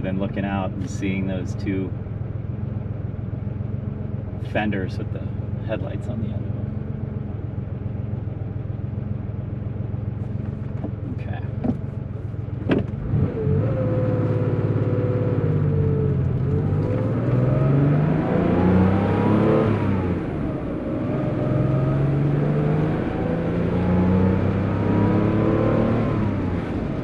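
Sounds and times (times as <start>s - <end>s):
car engine accelerating from inside: 9.0s - 27.0s.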